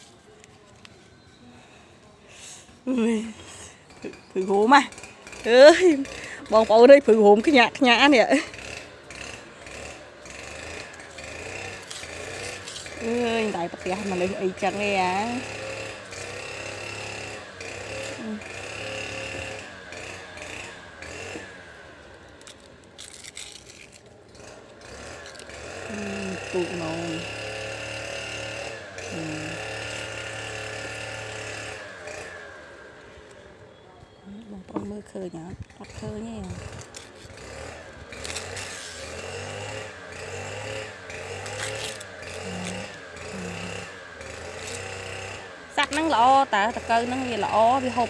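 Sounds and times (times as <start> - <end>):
motor hum: 0.6 - 48.0
banana leaf crackling: 7.4 - 27.9, 35.6 - 48.0.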